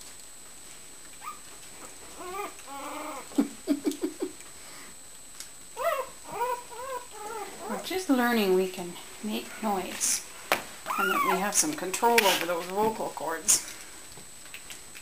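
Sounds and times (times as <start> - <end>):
puppies whimpering and yipping: 1.2 - 1.5, 2.1 - 3.3, 5.8 - 7.9, 10.9 - 11.6.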